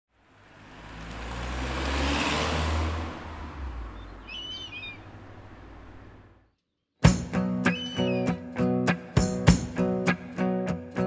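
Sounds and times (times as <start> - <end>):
car driving past: 0.2 - 6.5
bird chirping: 3.9 - 7.0, 7.7 - 8.4.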